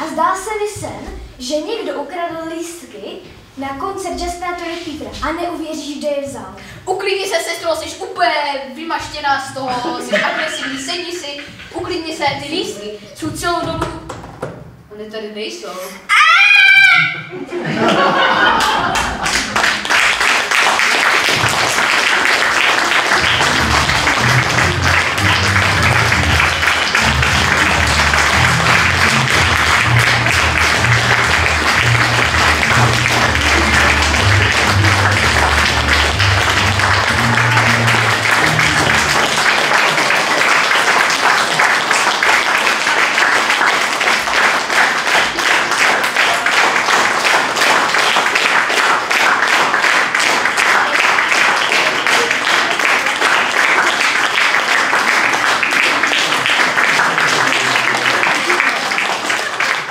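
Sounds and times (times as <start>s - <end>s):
audience applauding: 17.9s - 59.9s
music with low bass line: 23.4s - 39.1s.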